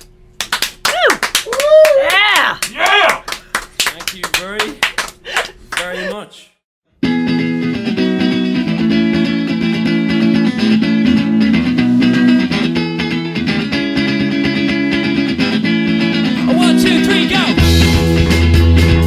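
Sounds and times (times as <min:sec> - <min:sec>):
strummed guitar tune: 0:07.0 - 0:19.0.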